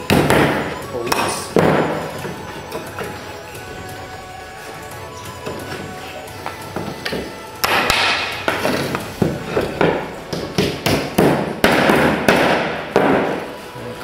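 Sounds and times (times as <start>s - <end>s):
hammer striking nails into wood: 7.1s - 8.6s, 9.8s - 13.4s.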